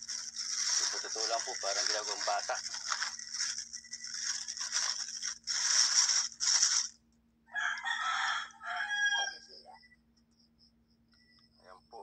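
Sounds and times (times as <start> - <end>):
rustling handling noise: 0.0 - 7.0
rooster crowing: 7.5 - 9.6.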